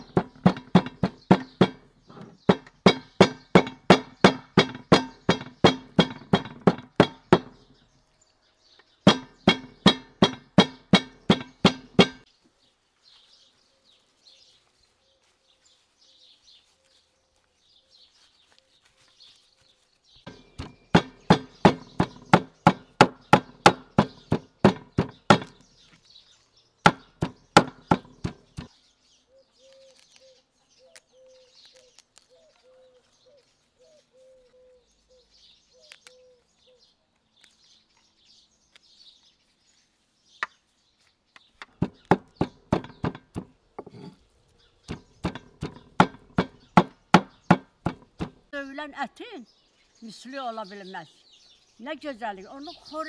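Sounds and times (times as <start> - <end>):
hatchet chopping meat on wood: 0.0 - 1.9, 2.5 - 7.6, 9.1 - 12.3, 20.3 - 25.6, 26.9 - 28.7, 41.7 - 44.1, 44.8 - 48.4
birds chirping faintly: 0.0 - 53.0.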